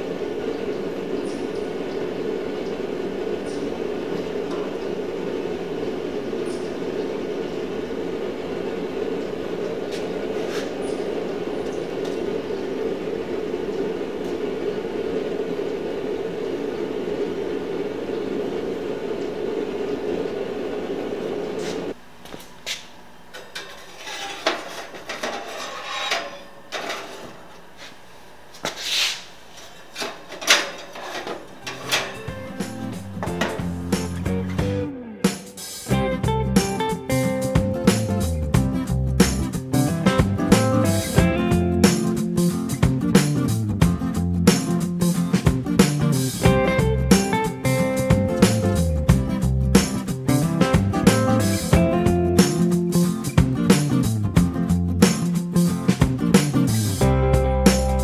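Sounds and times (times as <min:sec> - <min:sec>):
gas burner rushing: 0:00.0 - 0:58.0
metal clinking and scraping: 0:23.4 - 0:27.4, 0:29.6 - 0:32.3.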